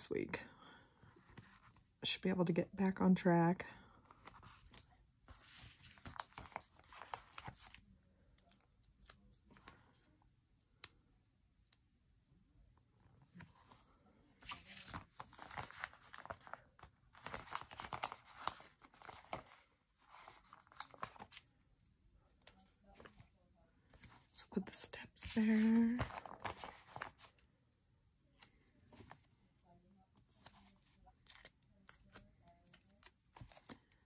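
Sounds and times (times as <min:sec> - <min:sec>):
stickers peeling and rustling: 0:30.2 - 0:34.0.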